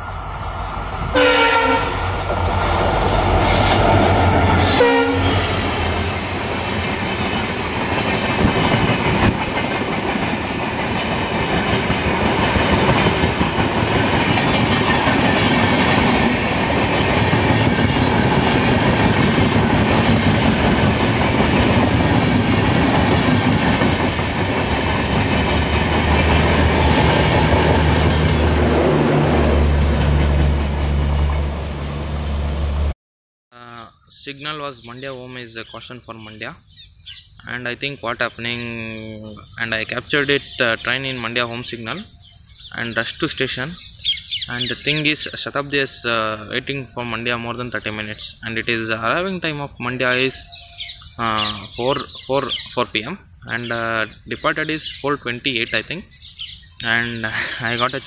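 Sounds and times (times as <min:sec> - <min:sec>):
train wheels clattering on rails: 0:00.2 - 0:31.8
locomotive horn: 0:01.1 - 0:02.2, 0:04.6 - 0:06.3.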